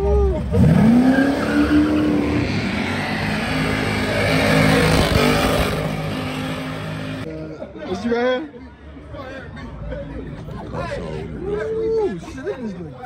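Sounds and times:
car engine revving hard: 0:00.5 - 0:07.2.

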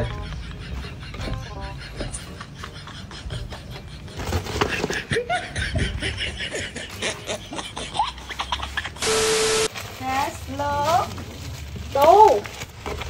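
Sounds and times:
breathy laughter: 0:00.0 - 0:09.0.

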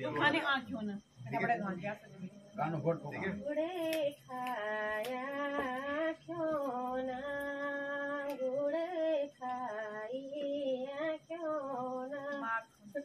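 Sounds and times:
woman singing unaccompanied: 0:03.4 - 0:13.0.

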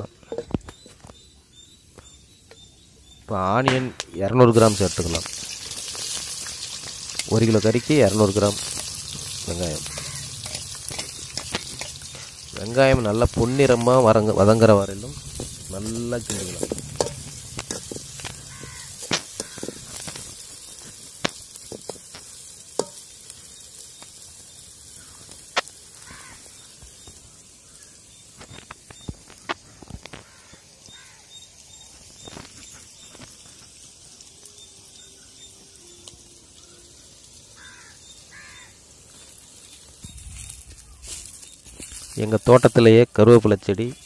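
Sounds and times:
onions sizzling in oil: 0:04.2 - 0:44.0.

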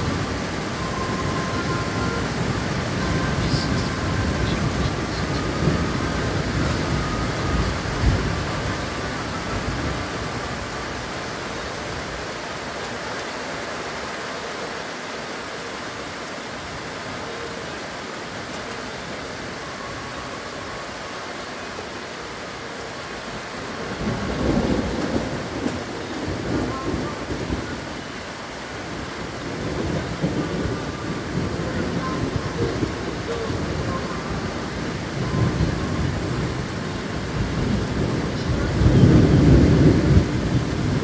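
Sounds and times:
thunder rumbling: 0:00.0 - 0:12.3, 0:23.8 - 0:41.0
steady rain: 0:00.0 - 0:41.0.

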